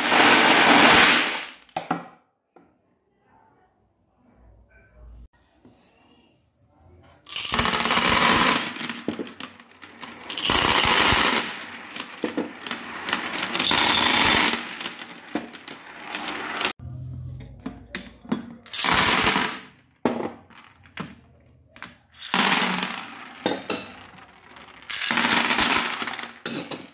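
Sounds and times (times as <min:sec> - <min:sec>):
glass gems and beads clinking: 0:07.3 - 0:16.8, 0:22.2 - 0:26.9
glass marbles clattering: 0:07.3 - 0:16.8, 0:17.9 - 0:19.6, 0:22.2 - 0:26.9
marbles clicking as they roll: 0:07.3 - 0:16.8, 0:22.2 - 0:26.8.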